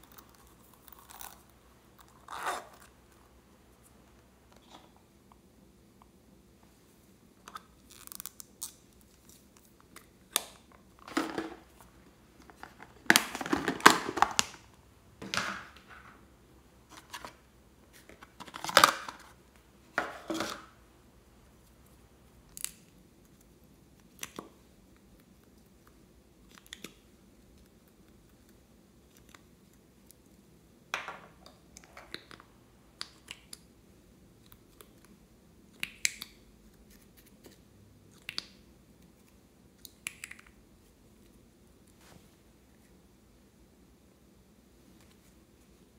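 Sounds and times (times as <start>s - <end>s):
plastic containers clicking and scraping: 12.4s - 14.6s, 20.0s - 20.7s.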